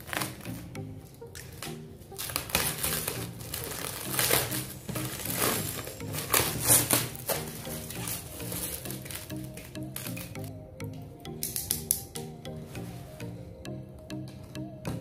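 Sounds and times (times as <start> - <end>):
quiet background music: 0.0 - 15.0
plastic wrap crinkling: 1.4 - 10.3.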